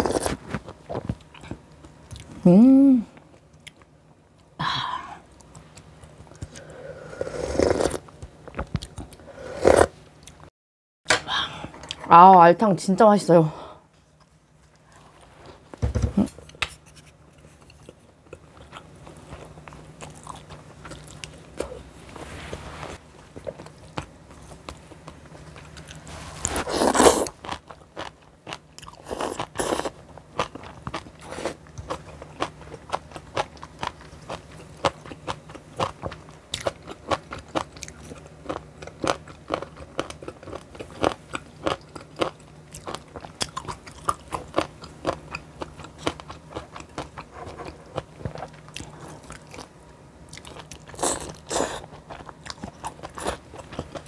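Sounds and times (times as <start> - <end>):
chewing and crunching food: 0.0 - 2.4, 7.5 - 9.3, 16.4 - 22.2, 23.1 - 54.0.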